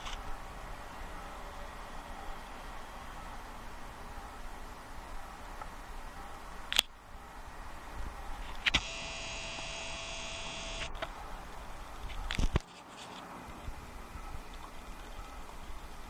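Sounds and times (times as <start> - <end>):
camcorder zoom motor whirring: 8.7 - 11.0.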